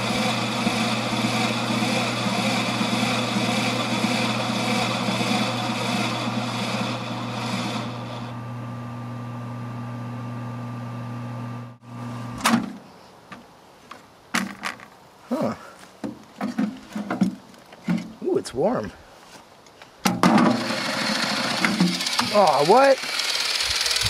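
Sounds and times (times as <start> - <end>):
microwave oven humming: 0.0 - 12.3.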